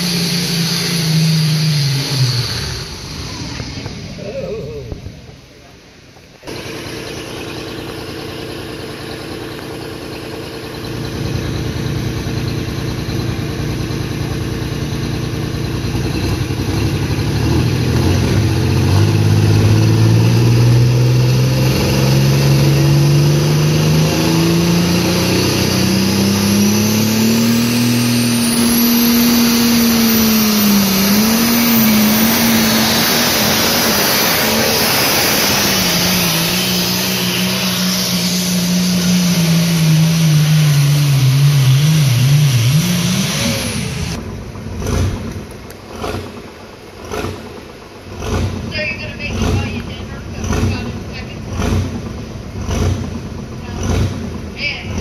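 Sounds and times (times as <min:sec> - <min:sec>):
diesel tractor engine under load: 0:00.0 - 0:55.0
high whine: 0:17.8 - 0:44.4.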